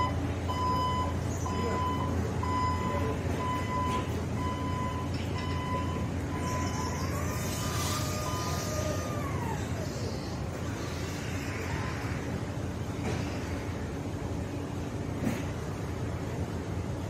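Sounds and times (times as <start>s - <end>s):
warning beeper: 0.0s - 7.1s.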